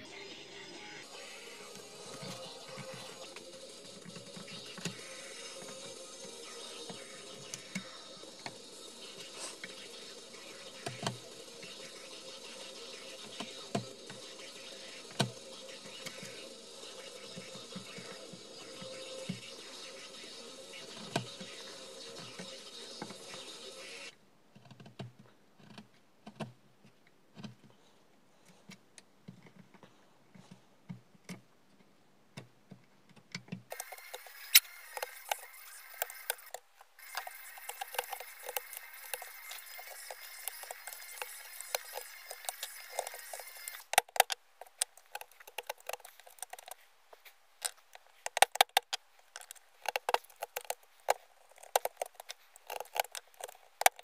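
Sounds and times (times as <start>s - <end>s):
chisel shaving wood: 33.7s - 46.9s, 47.6s - 54.0s.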